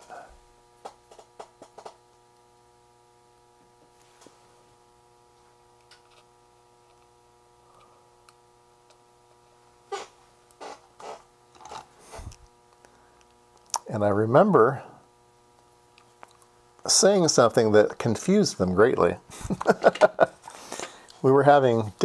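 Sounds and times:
faint steady hum: 0.0 - 22.0
clicks and rustles of small parts: 10.6 - 13.7.

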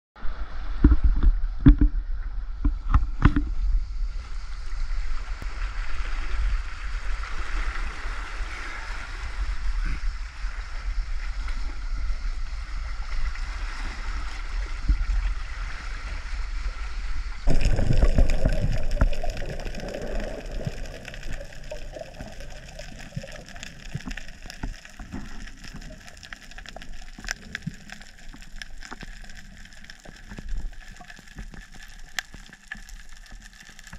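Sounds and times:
wind rumble on microphone: 0.2 - 22.4
muffled underwater water sound: 0.2 - 33.9
seawater sloshing among rocks: 17.5 - 28.3.

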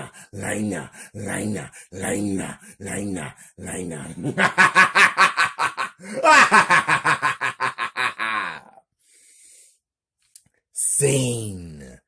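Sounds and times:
person uttering rapid syllables: 0.0 - 4.3
faint breath: 9.0 - 9.8.

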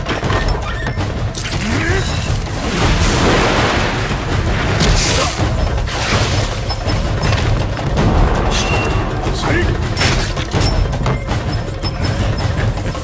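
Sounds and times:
dramatic background music: 0.0 - 13.0
booming crashing impacts: 2.5 - 10.6.

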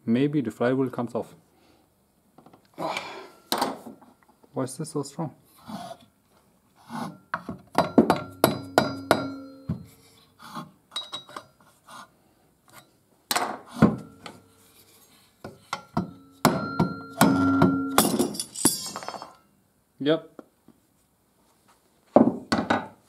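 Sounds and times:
mallet striking metal: 7.8 - 9.9, 15.9 - 18.4.

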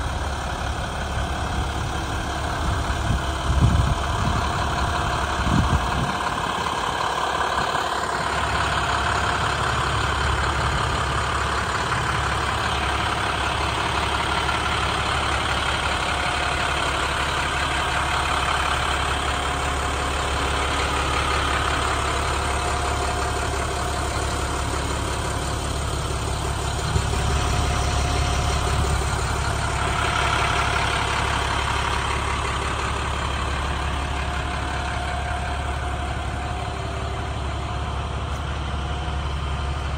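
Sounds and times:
diesel truck idling: 0.0 - 39.9.

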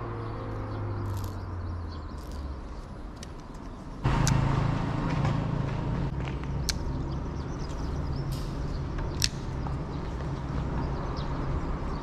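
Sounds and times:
vehicle passing loudly: 4.0 - 6.2.

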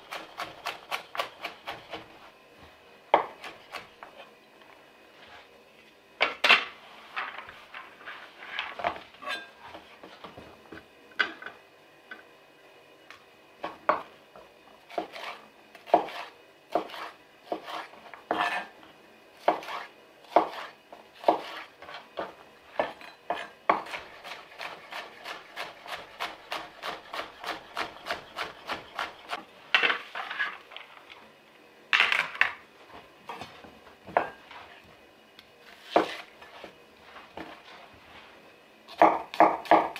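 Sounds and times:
knife chopping on wooden board: 14.9 - 18.6, 19.4 - 21.6.

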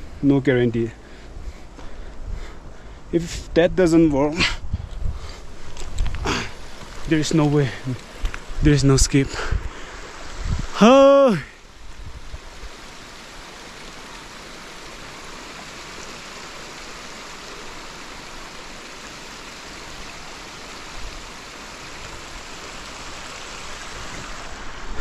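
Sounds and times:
rushing water: 5.8 - 25.0.

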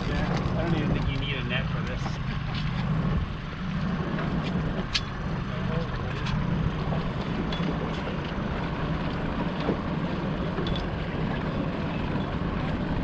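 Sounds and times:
outboard motor running: 0.0 - 13.0.

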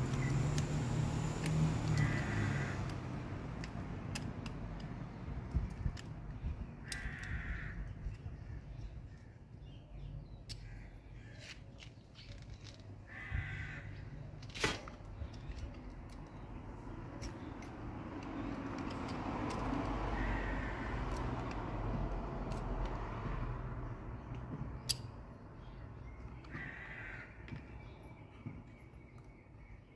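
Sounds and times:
screwdriver clicks and scrapes: 17.1 - 19.9.

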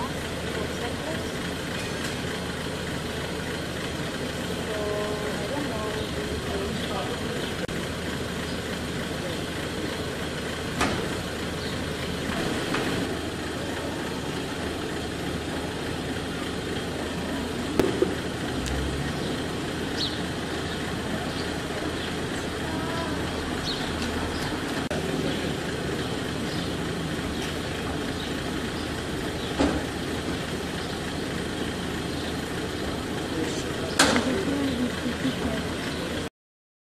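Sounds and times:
jeep engine idling: 0.0 - 36.3
sharp knocks: 17.8 - 18.2.

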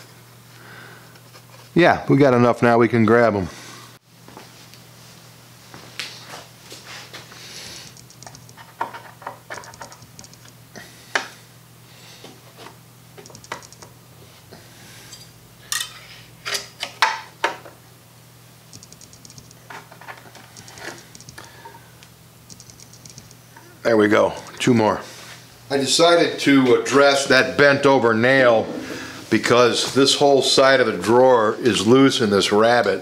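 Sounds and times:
small metallic clicks and taps: 9.5 - 10.5.

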